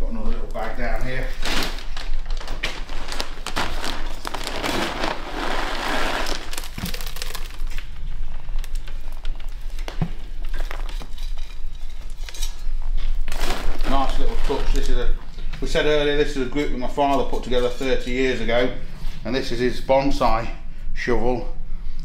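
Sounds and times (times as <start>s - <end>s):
granules pouring from plastic bag: 1.4s - 9.7s, 13.3s - 15.0s.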